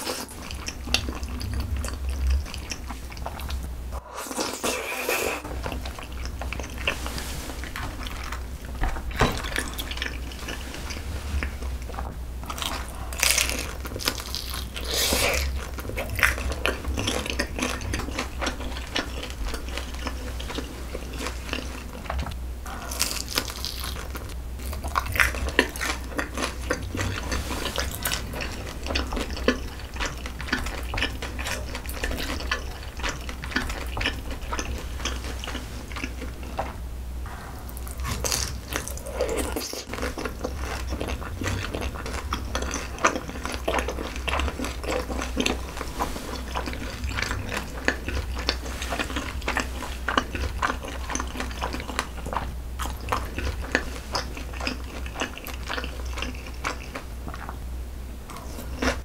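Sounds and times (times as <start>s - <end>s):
crunchy chewing: 0.0s - 57.6s, 58.3s - 59.0s
biting crispy fried meat: 12.5s - 20.6s, 22.8s - 36.4s.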